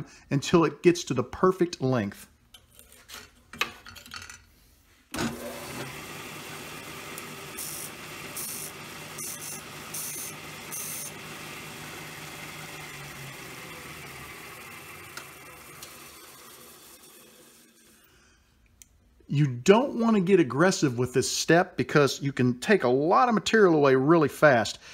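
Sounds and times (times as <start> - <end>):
disc sander motor humming: 5.2 - 18.0.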